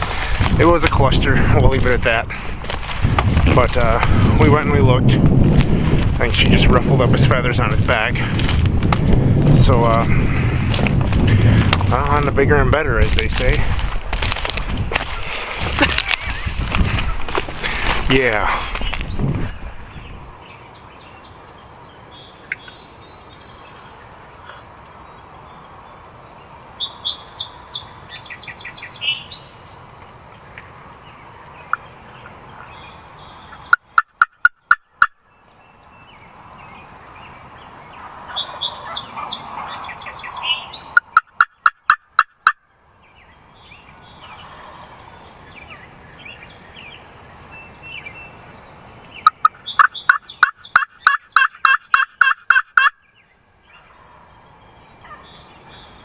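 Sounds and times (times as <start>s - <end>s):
small birds chirping: 14.7s - 56.0s
turkey calling: 33.4s - 35.2s, 38.0s - 42.6s, 49.2s - 53.0s, 53.7s - 54.2s, 55.0s - 56.0s.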